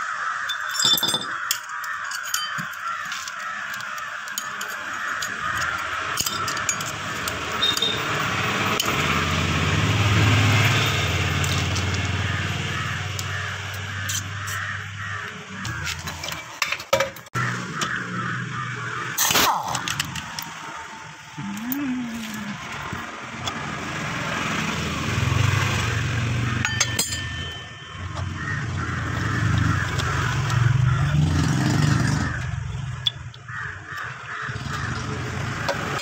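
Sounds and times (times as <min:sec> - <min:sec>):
birds calling: 0:00.0 - 0:36.0
metal parts clinking: 0:00.4 - 0:08.2, 0:26.6 - 0:28.0.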